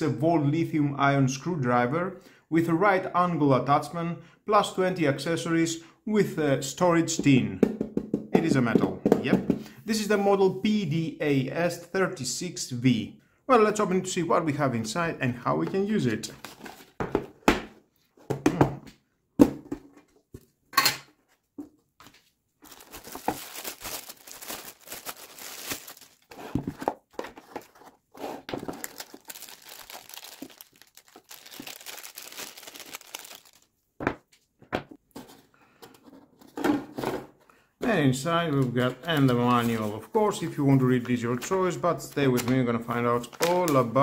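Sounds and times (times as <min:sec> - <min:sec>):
crinkling plastic rustle: 0:22.6 - 0:27.9, 0:28.5 - 0:33.7.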